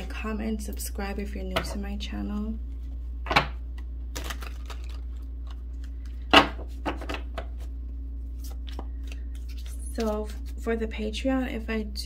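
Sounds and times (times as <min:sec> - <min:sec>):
cards being shuffled: 0:03.8 - 0:07.7, 0:08.3 - 0:10.7.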